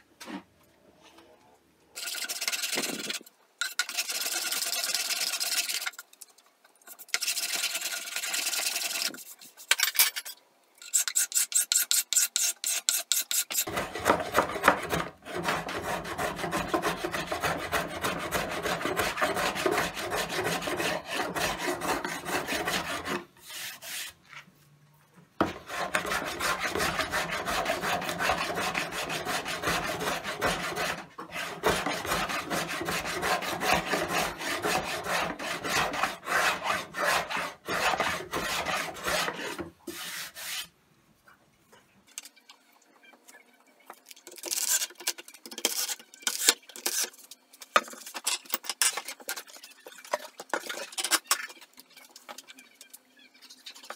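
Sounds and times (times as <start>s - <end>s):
card scraper shaving wood: 10.9s - 24.1s, 25.4s - 40.6s
rapid rubbing on wood: 25.4s - 40.6s.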